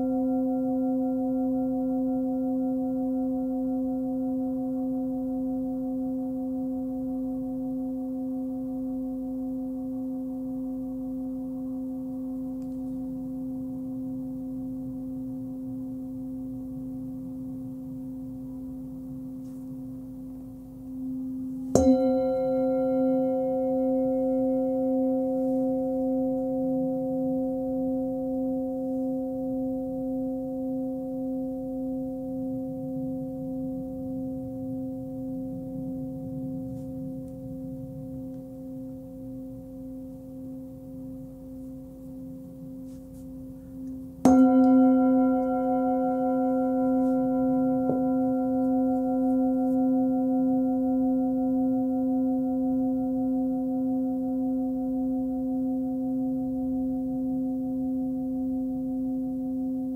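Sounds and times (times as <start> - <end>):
singing bowl ringing: 0.0 - 59.9.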